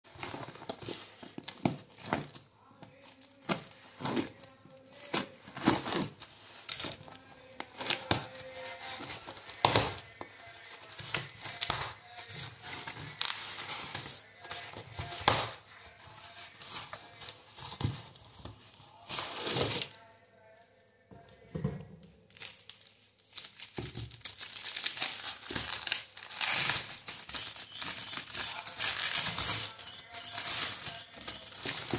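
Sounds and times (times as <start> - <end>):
cardboard and plastic wrap rustling: 0.1 - 20.5, 21.4 - 31.9
packing tape ripping: 22.3 - 31.9.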